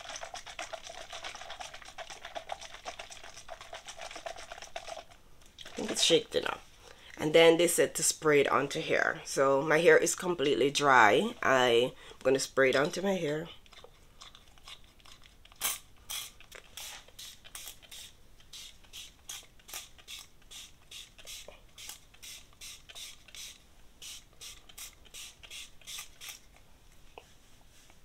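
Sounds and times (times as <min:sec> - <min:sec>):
pump spray bottle spritzing: 0:15.5 - 0:26.4.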